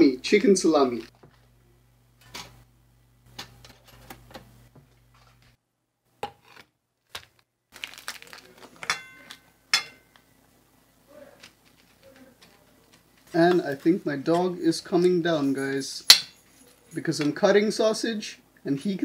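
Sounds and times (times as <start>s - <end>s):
plastic wrapper rustling: 7.0s - 9.5s, 11.1s - 15.0s.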